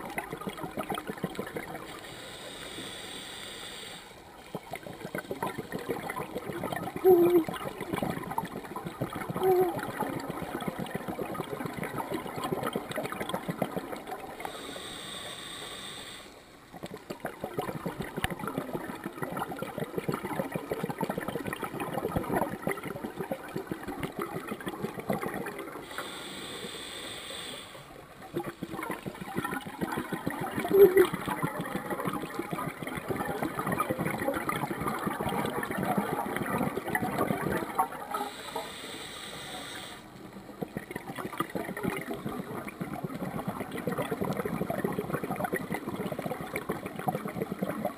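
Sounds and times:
exhaled bubbles gurgling: 0:00.0 - 0:02.8, 0:04.2 - 0:15.2, 0:16.6 - 0:47.9
regulator hissing inhalations: 0:02.0 - 0:04.2, 0:14.5 - 0:16.4, 0:25.8 - 0:27.9, 0:38.2 - 0:40.1.

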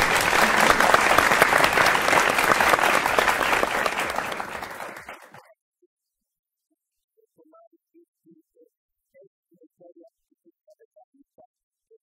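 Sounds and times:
group applause: 0:00.0 - 0:05.4.

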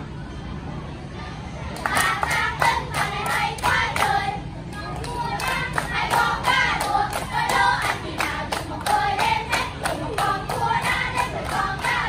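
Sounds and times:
hands clapping a steady beat: 0:01.8 - 0:04.2, 0:04.8 - 0:12.0
girls singing together: 0:01.8 - 0:12.0.

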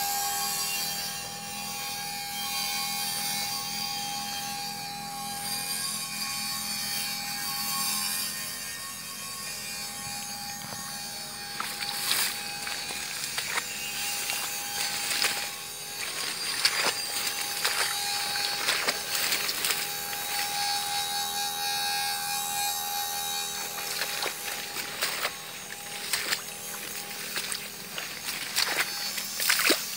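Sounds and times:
high-pitched background hum: 0:00.0 - 0:29.9
rice stalks rustling: 0:10.7 - 0:21.1, 0:23.2 - 0:29.9.

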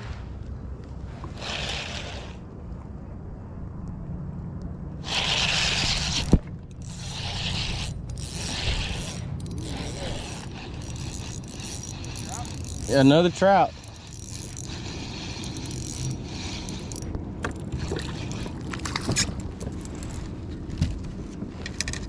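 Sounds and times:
fishing reel scraping and rubbing: 0:01.3 - 0:02.4, 0:05.0 - 0:17.1, 0:17.7 - 0:19.3.

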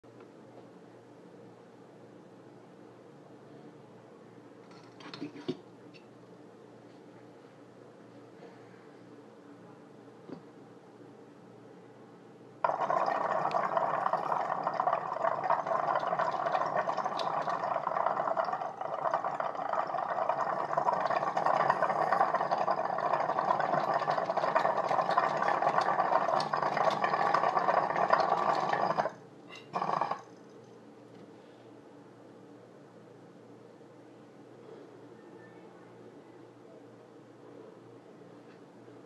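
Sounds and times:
water bubbling in a water pipe: 0:12.6 - 0:30.3.

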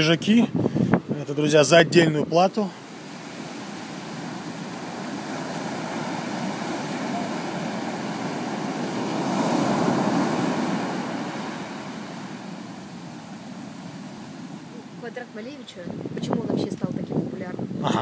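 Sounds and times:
ocean surf on beach: 0:00.0 - 0:17.9
wave breaking: 0:02.7 - 0:15.6.

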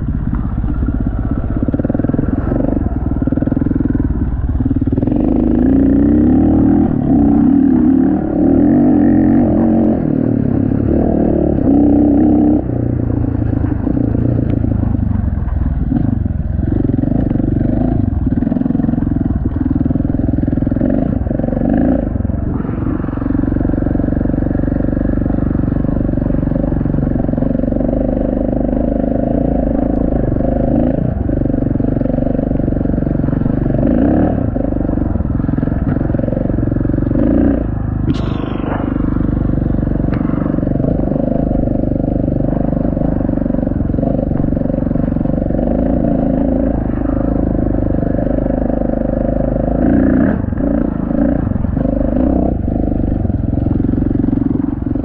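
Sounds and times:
dirt bike engine running: 0:00.0 - 0:55.0
brief sharp noise: 0:38.1 - 0:39.5.

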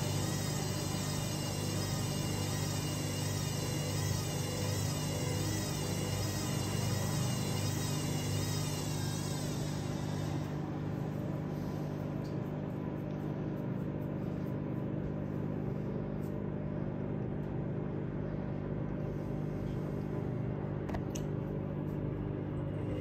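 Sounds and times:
drum whine: 0:00.0 - 0:15.9
washing machine motor hum: 0:00.0 - 0:23.0.

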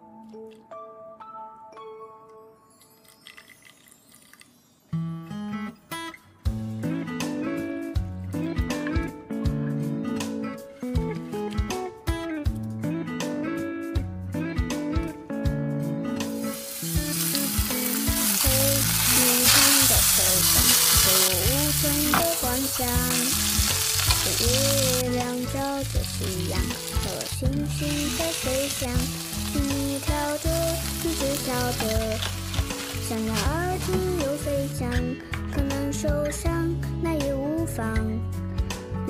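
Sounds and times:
meat sizzling in a frying pan: 0:16.4 - 0:34.8.

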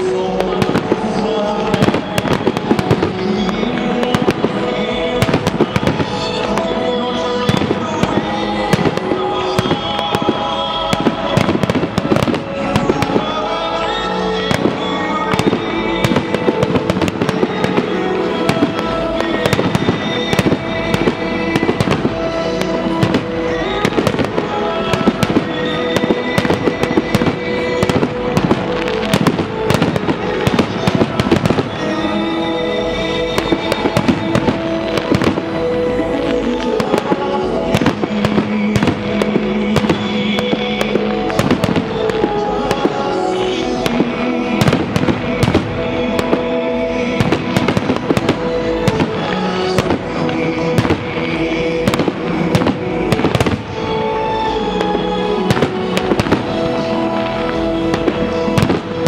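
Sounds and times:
fireworks bangs and crackles: 0:00.0 - 0:59.0
music: 0:00.0 - 0:59.0.

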